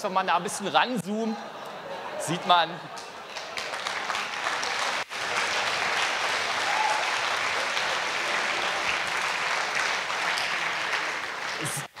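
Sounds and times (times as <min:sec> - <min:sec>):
audience clapping: 0:02.9 - 0:12.0.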